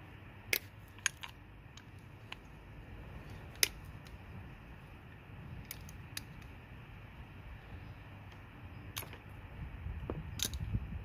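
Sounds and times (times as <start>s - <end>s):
faint low hum: 0.0s - 11.0s
metallic clicks of tools: 10.4s - 10.7s.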